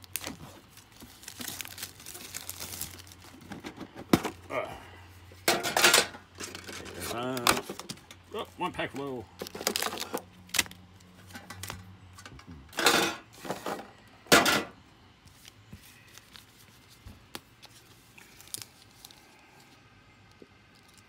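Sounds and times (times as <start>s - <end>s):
rustling swishes of card packs: 0.0s - 4.5s, 15.2s - 19.9s.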